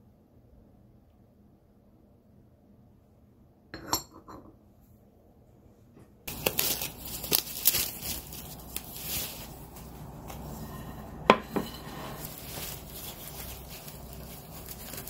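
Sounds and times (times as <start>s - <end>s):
tableware clink: 3.8s - 4.5s, 10.7s - 12.3s
dishes and cutlery clattering: 11.0s - 12.4s.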